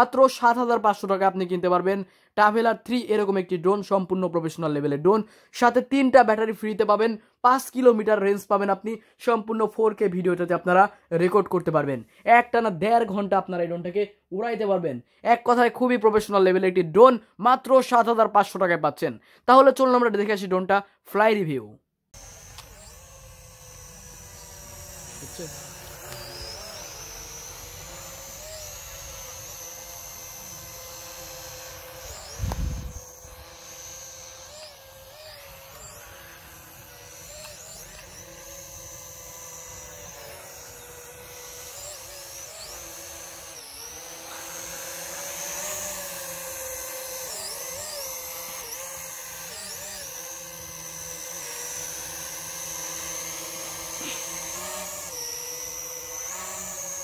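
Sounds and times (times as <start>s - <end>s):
drone propellers whining: 22.2s - 57.0s.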